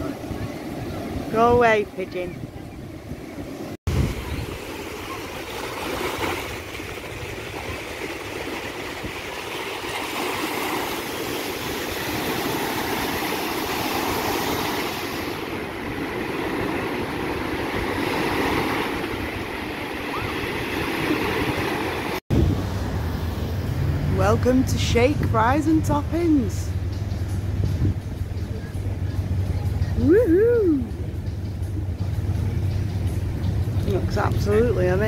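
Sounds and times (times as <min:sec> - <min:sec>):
waves washing on sandy beach: 0:00.0 - 0:26.8.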